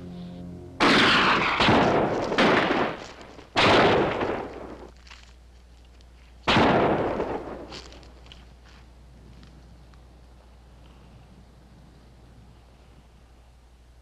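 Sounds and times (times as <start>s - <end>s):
gunshots echoing: 0.8s - 4.9s, 6.5s - 7.7s.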